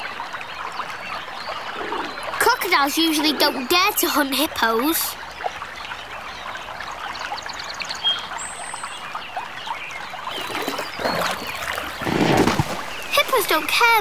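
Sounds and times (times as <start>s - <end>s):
water trickling and splashing: 0.0s - 14.0s
loud water splash: 10.3s - 13.4s.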